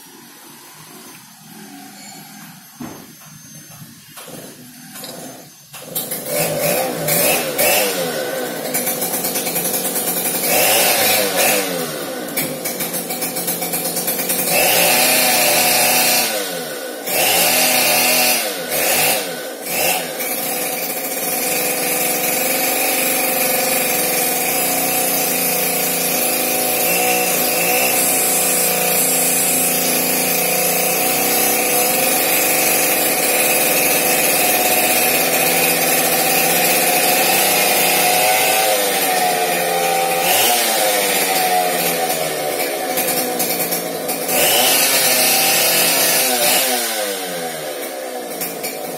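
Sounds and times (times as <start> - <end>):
small engine running: 0.0 - 48.9.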